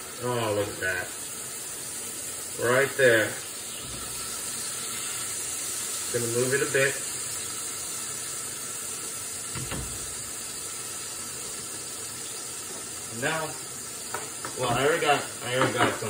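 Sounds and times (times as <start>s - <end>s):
patty sizzling in a frying pan: 0.0s - 16.0s.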